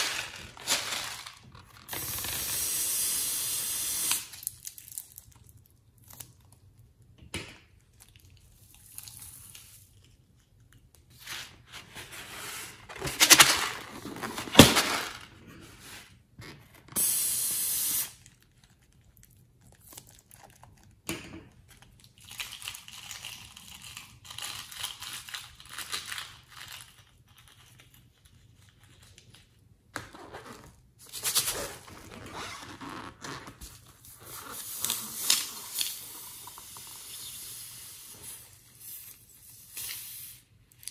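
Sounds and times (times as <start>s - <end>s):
steady hiss: 17.0s - 18.2s
balloons squeaking and crinkling: 30.2s - 35.8s.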